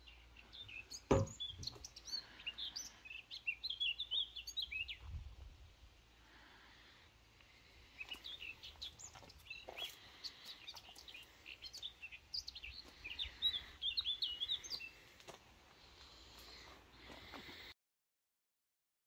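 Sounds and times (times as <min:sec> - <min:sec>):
small birds chirping: 0:00.0 - 0:05.3, 0:06.1 - 0:17.7.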